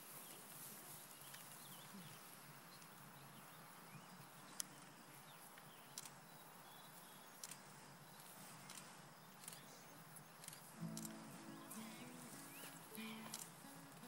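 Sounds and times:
faint chirps: 0.1 - 14.0
sharp clicks: 7.4 - 7.6, 10.4 - 11.2.

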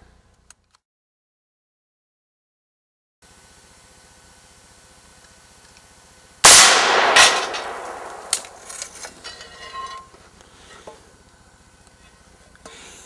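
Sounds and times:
rifle shot striking steel plate: 6.4 - 10.0
handling clicks and rustles: 7.2 - 11.0.

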